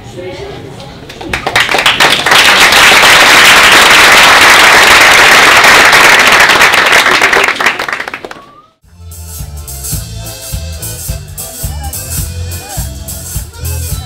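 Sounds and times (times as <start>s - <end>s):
crowd applauding: 1.2s - 8.6s.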